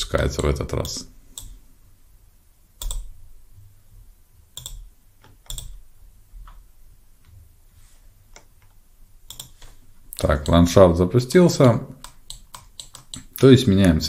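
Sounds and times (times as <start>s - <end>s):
mouse and keyboard clicks: 4.6s - 5.8s, 8.3s - 10.6s, 12.0s - 13.4s.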